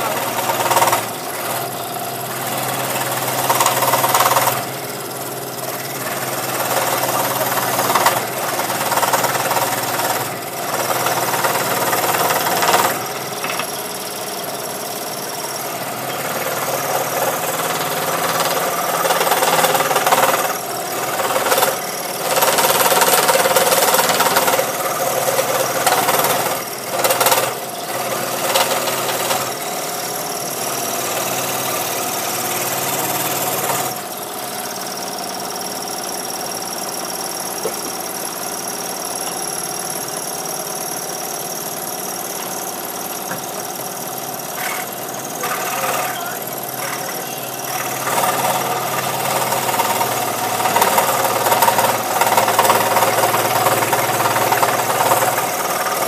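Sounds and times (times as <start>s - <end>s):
scroll saw cutting wood: 0.0s - 4.9s, 5.6s - 13.7s, 15.6s - 34.0s, 44.5s - 56.0s.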